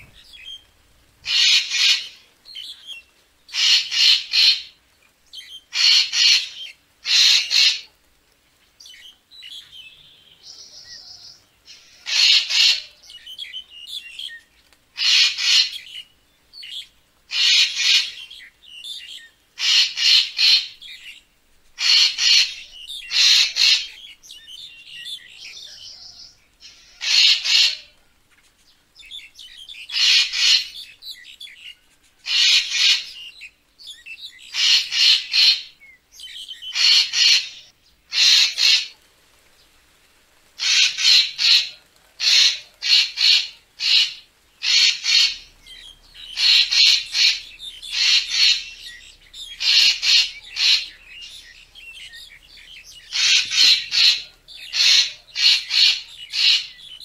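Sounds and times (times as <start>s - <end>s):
bird giving harsh rasping calls: 1.3s - 2.2s, 3.5s - 4.7s, 5.7s - 7.8s, 11.8s - 13.0s, 15.0s - 15.8s, 17.3s - 18.2s, 19.6s - 20.8s, 21.8s - 24.1s, 26.7s - 27.9s, 29.9s - 30.8s, 32.2s - 33.2s, 34.5s - 35.8s, 36.6s - 38.9s, 40.6s - 57.0s
soft bird chattering notes: 40.6s - 57.0s.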